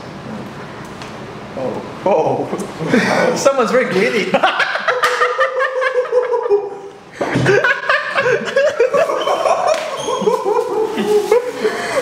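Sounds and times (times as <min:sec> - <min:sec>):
people laughing: 0:02.8 - 0:12.0.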